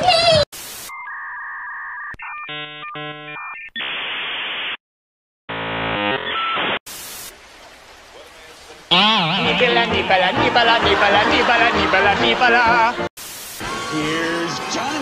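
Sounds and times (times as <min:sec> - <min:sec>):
loud hiss: 0:06.9 - 0:07.4, 0:13.2 - 0:14.4.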